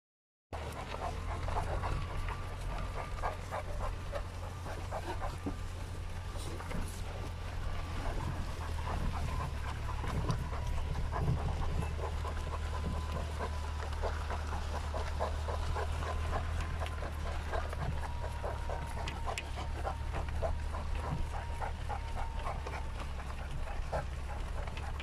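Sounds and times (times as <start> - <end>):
car driving hum: 0.6 - 25.0
dog panting: 0.6 - 25.0.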